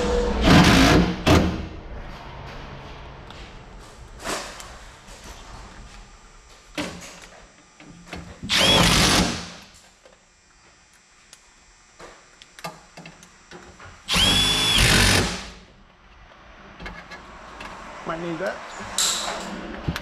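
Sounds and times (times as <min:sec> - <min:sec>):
power drill whine: 0:08.5 - 0:09.5, 0:14.1 - 0:15.5.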